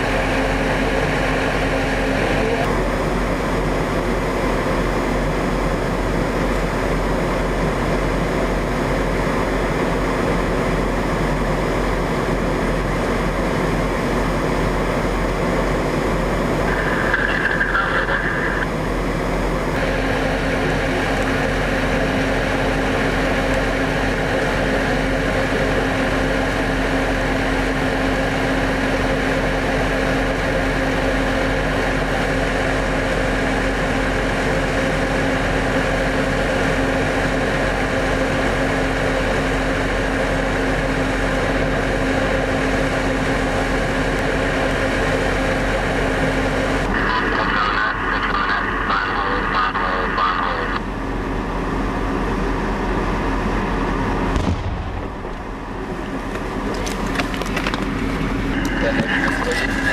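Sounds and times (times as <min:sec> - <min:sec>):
vehicle engines idling: 0:41.7 - 0:59.9.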